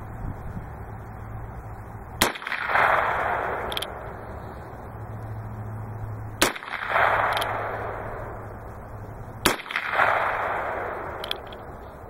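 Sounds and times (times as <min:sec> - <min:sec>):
gunshot echo rolling: 0:02.2 - 0:04.4, 0:06.4 - 0:08.5, 0:09.4 - 0:12.0
revolver shots: 0:09.4 - 0:11.7.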